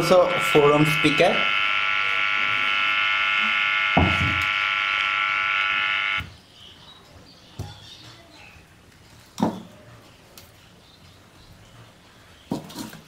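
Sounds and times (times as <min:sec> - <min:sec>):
loud steady speaker buzz: 0:00.0 - 0:06.3.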